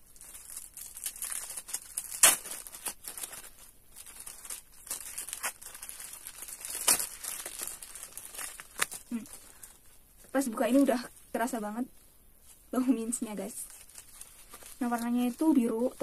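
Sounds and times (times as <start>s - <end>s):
plastic wrapper crinkling: 0.0s - 11.6s, 12.4s - 16.0s.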